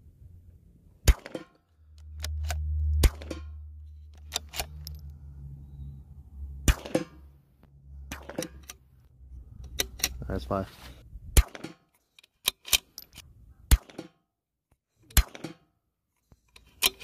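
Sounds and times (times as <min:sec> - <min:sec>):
low steady rumble: 0:00.0 - 0:11.5
rifle bolt clicks: 0:04.1 - 0:05.0, 0:09.6 - 0:10.2, 0:12.1 - 0:13.2
rifle shots cracking: 0:06.7 - 0:07.2.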